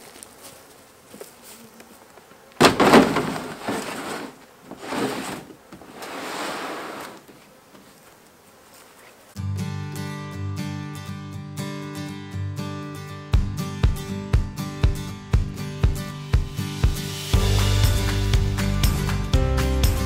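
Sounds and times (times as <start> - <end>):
bees buzzing faintly: 0.0 - 9.4
plastic tub scraping on steel: 2.6 - 7.2.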